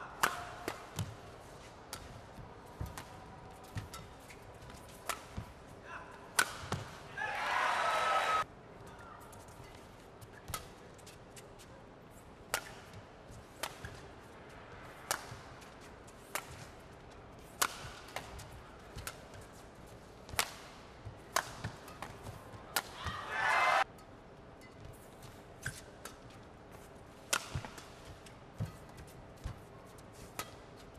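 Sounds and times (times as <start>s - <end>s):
steady low background noise: 0.0s - 30.9s
shuttlecock hit by rackets: 6.4s - 7.0s, 17.6s - 19.4s, 20.3s - 23.0s, 27.2s - 29.6s.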